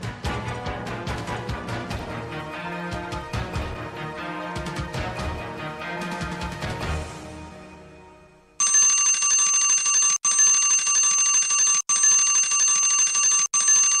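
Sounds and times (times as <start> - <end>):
theme music: 0.0 - 8.5
electric bell alarm ringing: 8.6 - 14.0.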